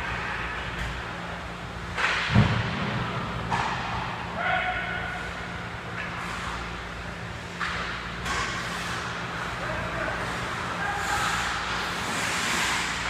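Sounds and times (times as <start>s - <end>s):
steady low hum: 0.0s - 13.0s
loud thud: 2.2s - 3.0s
skate blades scraping ice: 10.2s - 13.0s.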